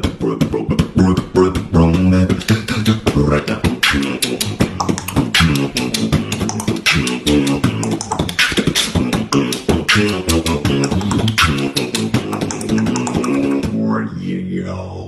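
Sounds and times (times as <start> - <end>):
man beatboxing: 0.0 - 15.0
hummed pitched notes: 2.5 - 14.0.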